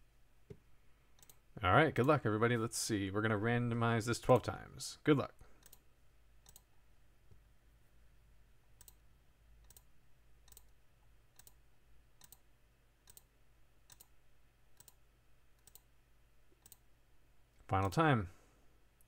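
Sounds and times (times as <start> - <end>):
computer mouse clicks: 1.2 - 1.4, 5.6 - 6.7, 8.8 - 9.0, 9.6 - 11.6, 12.2 - 13.3, 13.9 - 14.2, 14.8 - 15.0, 15.6 - 15.9, 16.5 - 16.9.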